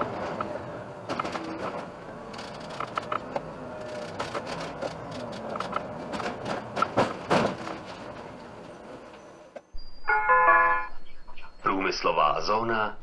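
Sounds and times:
bus cabin running noise: 0:00.0 - 0:13.0
rapid rattling and clicking: 0:03.8 - 0:07.6.

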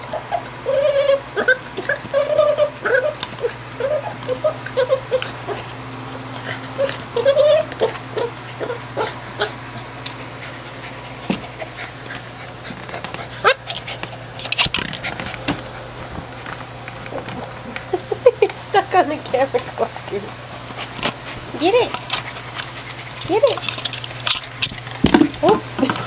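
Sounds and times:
dog whimpering: 0:00.0 - 0:09.8.

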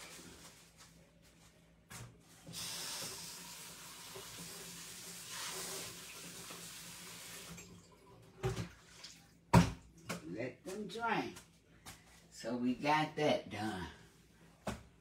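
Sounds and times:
tap water spraying in sink: 0:02.4 - 0:07.8.

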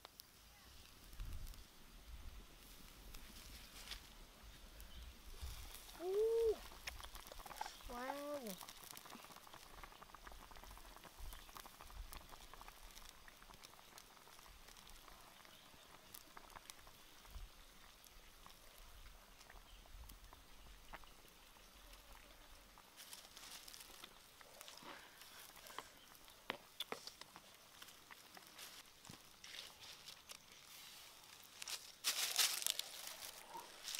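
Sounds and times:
fire pops and crackles: 0:00.0 - 0:33.9
soup bubbling: 0:05.5 - 0:28.6.

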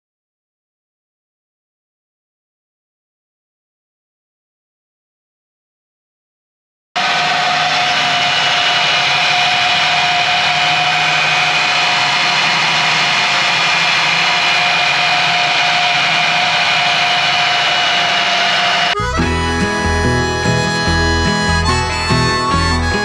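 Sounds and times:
core drill grinding through brick: 0:07.0 - 0:23.0.

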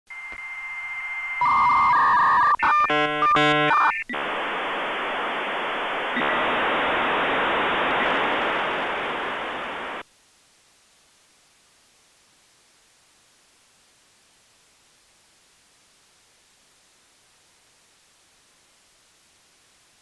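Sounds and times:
loud hiss: 0:04.2 - 0:10.0.

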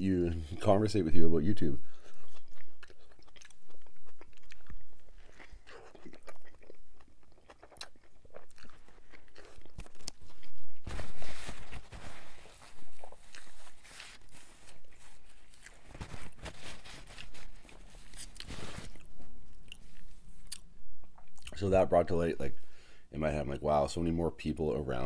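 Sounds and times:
wet chewing and crunching: 0:01.9 - 0:21.6
paper napkin rustling: 0:10.8 - 0:19.2.

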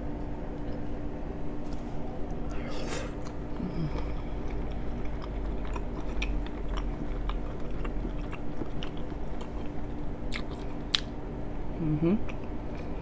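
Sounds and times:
person chewing: 0:02.2 - 0:11.1.

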